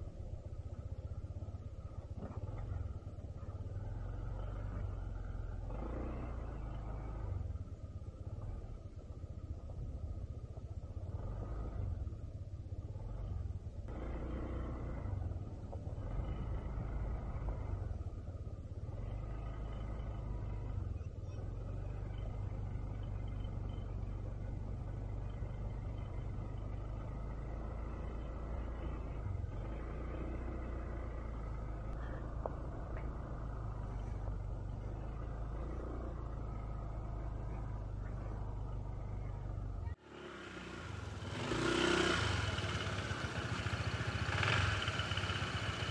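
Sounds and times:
scooter engine rumbling: 11.9s - 45.9s.

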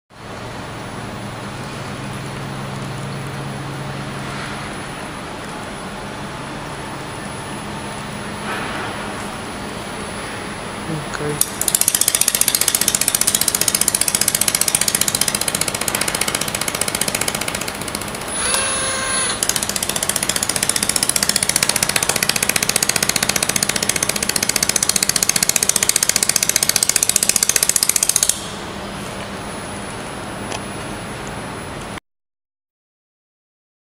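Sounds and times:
laser welder snapping pulses: 11.4s - 28.5s
short tone: 18.3s - 19.4s.

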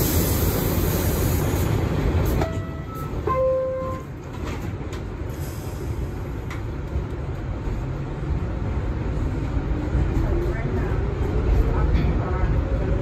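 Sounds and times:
subway car rumble: 0.0s - 13.0s.

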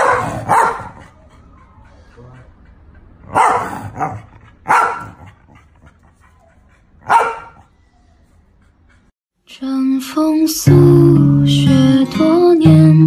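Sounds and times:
dog barking: 0.0s - 1.2s, 3.2s - 5.4s, 7.0s - 7.7s
music: 9.5s - 13.0s.

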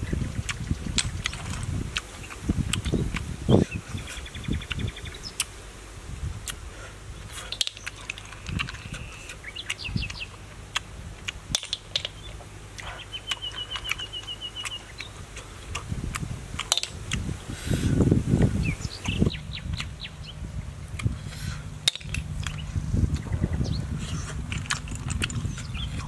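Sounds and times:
wild birds chirping: 0.0s - 26.0s
snail shells clicking open: 10.8s - 12.3s, 16.6s - 17.2s.

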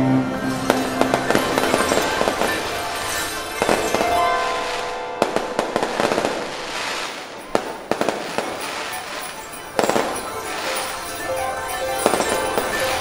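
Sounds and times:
firework crackling: 0.2s - 13.0s
firework bangs: 0.3s - 13.0s.

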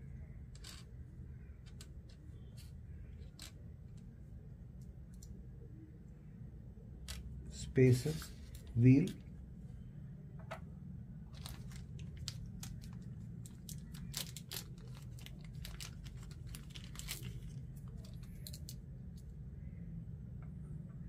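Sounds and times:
plastic bag tearing and crinkling: 11.3s - 18.7s.

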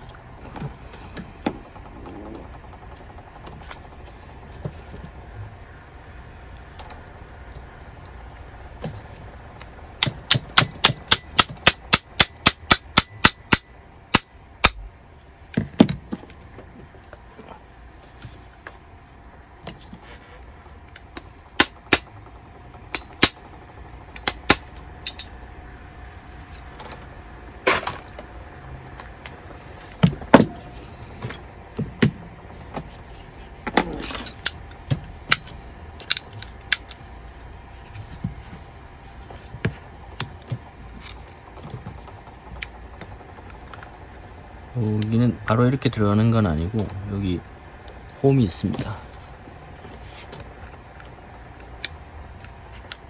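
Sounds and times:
pistol parts clicking: 34.4s - 37.0s.

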